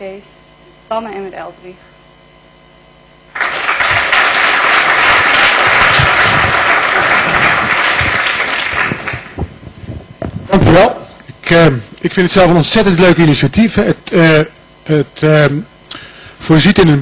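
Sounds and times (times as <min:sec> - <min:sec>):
audience applauding: 0:03.3 - 0:09.5.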